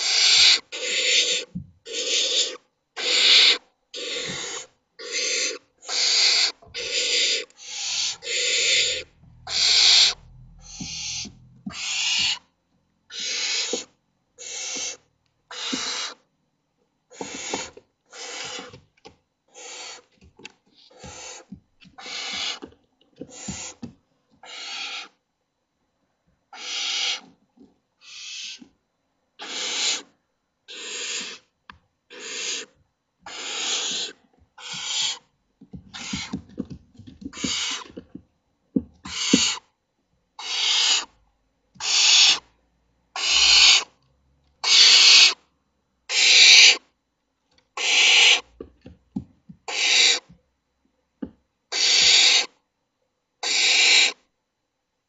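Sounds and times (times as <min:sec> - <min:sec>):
owlets rasping hiss calls: 0:00.0 - 0:12.4, 0:13.1 - 0:13.8, 0:14.4 - 0:16.2, 0:22.0 - 0:22.6, 0:26.6 - 0:27.2, 0:28.0 - 0:28.6, 0:30.7 - 0:31.4, 0:32.1 - 0:32.7, 0:33.3 - 0:35.2, 0:37.4 - 0:37.8, 0:39.1 - 0:39.6, 0:40.4 - 0:41.1, 0:41.8 - 0:42.4, 0:43.2 - 0:43.9, 0:44.6 - 0:45.4, 0:46.1 - 0:46.8, 0:47.8 - 0:48.4, 0:49.7 - 0:50.2, 0:51.7 - 0:52.5, 0:53.4 - 0:54.2
low rumble of movement: 0:08.7 - 0:13.1.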